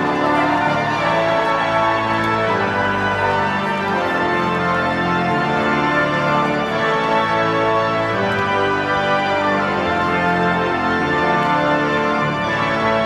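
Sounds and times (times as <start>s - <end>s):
pipe organ sustained chords: 0.0s - 13.0s.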